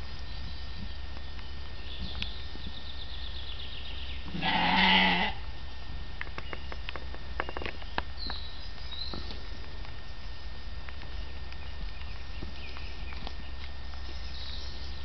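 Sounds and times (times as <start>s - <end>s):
sheep bleating: 4.3s - 5.4s.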